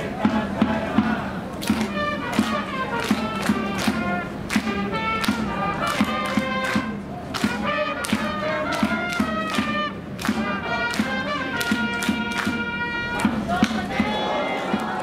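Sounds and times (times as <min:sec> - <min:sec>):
steady drum beat: 0:00.0 - 0:15.0
horn-like melody: 0:01.9 - 0:13.4.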